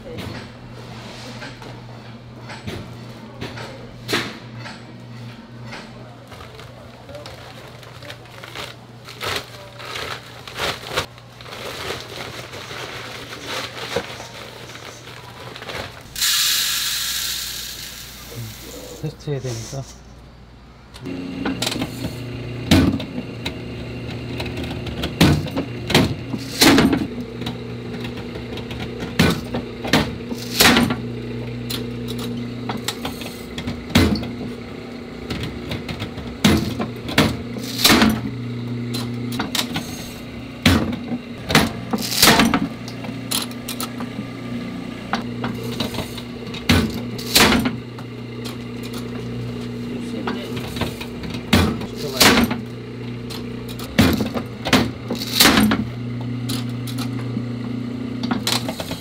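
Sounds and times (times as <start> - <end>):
machine electric hum: 6.8 - 59.0.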